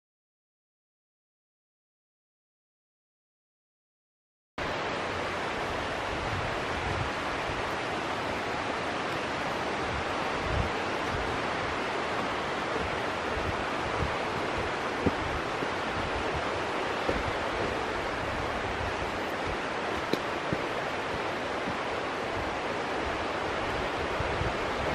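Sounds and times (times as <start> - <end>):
stream rushing: 4.6 - 24.9
soft low thumps: 12.1 - 22.6.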